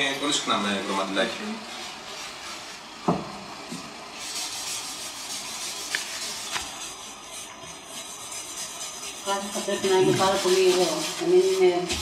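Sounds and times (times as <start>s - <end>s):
wipe rubbing over paper: 4.2s - 12.0s.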